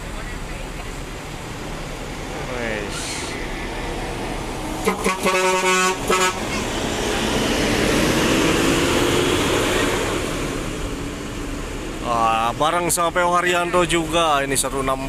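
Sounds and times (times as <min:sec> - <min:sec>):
bus engine pulling away: 0:00.0 - 0:15.0
bus horn playing notes: 0:04.8 - 0:06.8.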